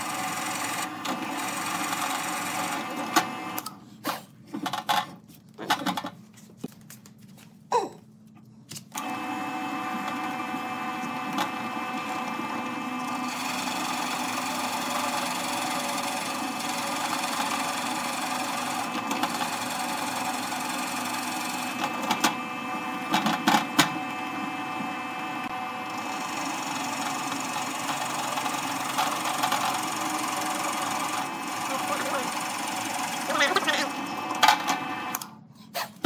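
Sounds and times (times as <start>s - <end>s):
drill press motor hum: 0.0s - 3.8s, 8.8s - 35.4s
drill bit grinding wood: 9.1s - 22.2s, 24.6s - 34.4s.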